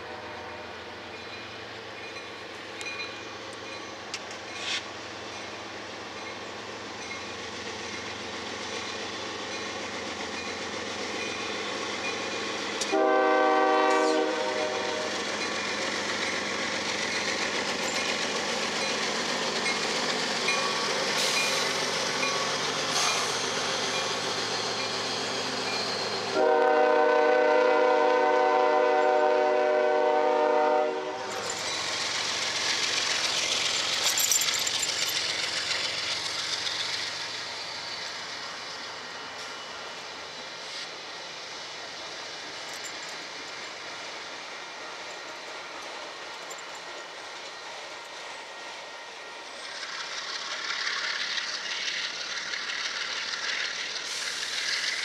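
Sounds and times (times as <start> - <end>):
train air horn blasts: 0.0 - 0.7, 12.9 - 15.2, 26.3 - 31.5
diesel locomotive engines: 0.0 - 55.0
wheels rumbling on rails: 0.0 - 55.0.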